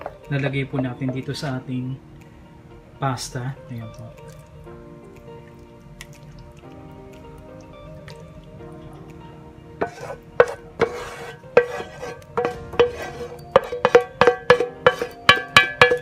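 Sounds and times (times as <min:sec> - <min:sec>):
wooden spatula knocking on metal pan: 0:00.0 - 0:01.4, 0:09.8 - 0:16.0
soft background music: 0:00.0 - 0:16.0.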